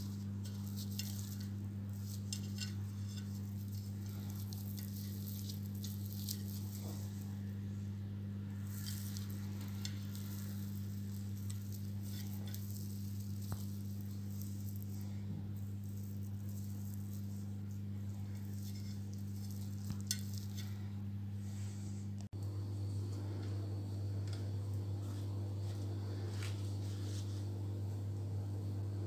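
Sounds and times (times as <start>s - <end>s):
flatbread being torn: 0.0s - 7.4s, 8.6s - 20.8s
low hum: 0.0s - 29.0s.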